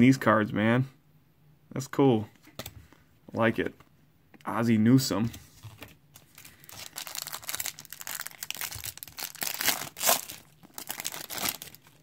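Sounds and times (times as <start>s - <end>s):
plastic wrapper crinkling and tearing: 5.6s - 12.0s.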